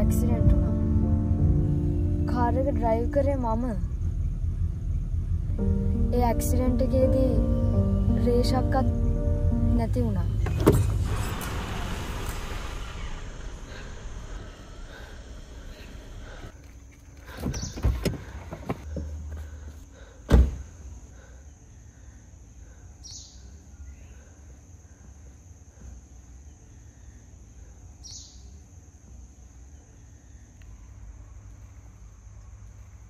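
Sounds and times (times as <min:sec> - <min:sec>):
car door shutting thump: 0:10.4 - 0:13.2, 0:20.3 - 0:20.6.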